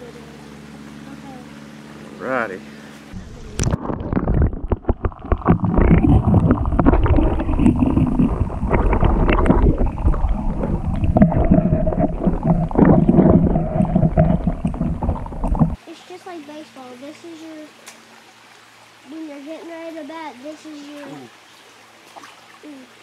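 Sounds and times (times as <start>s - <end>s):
muffled underwater water rushing: 3.1s - 15.8s
knocks and bumps underwater: 3.4s - 15.8s.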